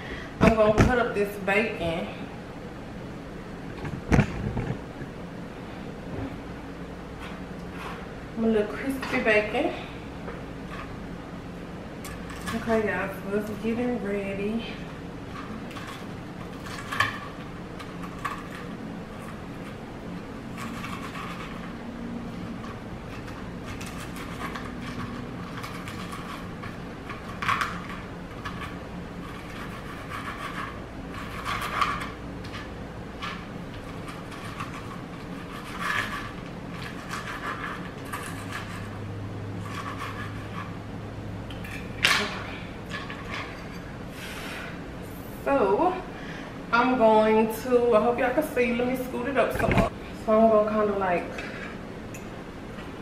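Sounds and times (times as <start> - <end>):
steady low hum: 0.0 - 53.0
knife scraping cutting board: 28.4 - 32.2, 33.8 - 39.0, 39.6 - 40.8.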